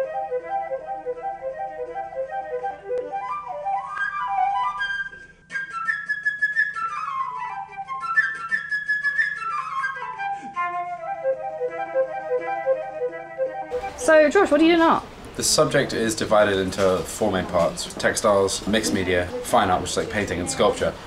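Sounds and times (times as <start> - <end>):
flute playing quick melodic runs: 0.0 - 14.6, 18.9 - 20.6.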